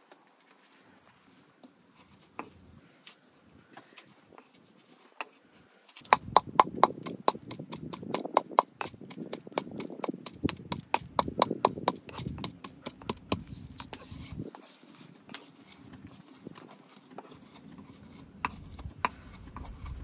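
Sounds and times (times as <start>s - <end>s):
stone pestle pounding in mortar: 6.0s - 14.0s.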